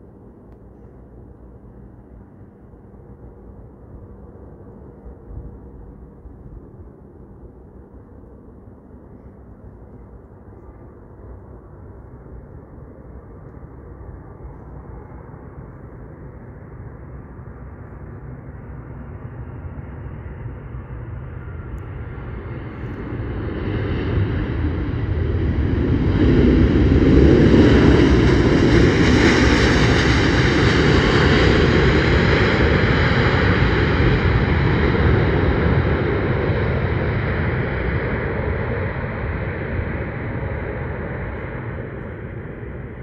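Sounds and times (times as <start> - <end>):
jet engines roaring: 9.7 - 43.0.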